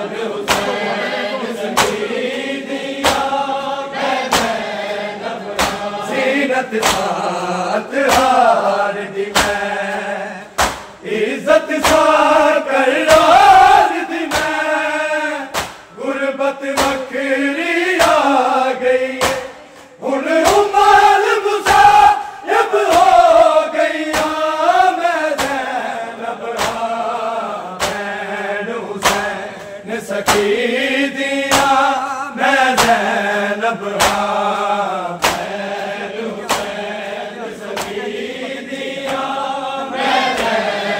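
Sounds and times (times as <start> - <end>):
men singing in chorus: 0.0 - 40.9
hands beating chests: 0.4 - 0.8, 1.7 - 2.0, 2.9 - 3.4, 4.2 - 4.7, 5.5 - 7.2, 8.0 - 8.5, 9.3 - 9.9, 10.5 - 11.0, 11.7 - 12.4, 13.0 - 15.9, 16.6 - 25.8, 26.4 - 28.2, 29.0 - 30.6, 31.4 - 31.9, 32.6 - 33.2, 33.8 - 39.4.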